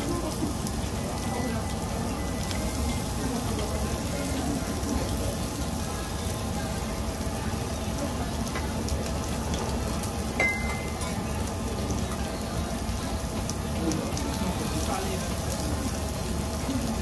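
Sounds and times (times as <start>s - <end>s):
meat sizzling on a grill: 0.0s - 17.0s
chopsticks clinking metal bowl: 10.4s - 11.2s.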